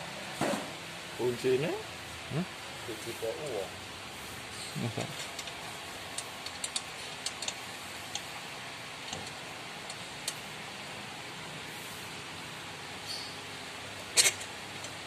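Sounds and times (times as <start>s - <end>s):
steady hiss: 1.1s - 15.0s
bolts clicking: 5.2s - 8.3s, 14.2s - 15.0s.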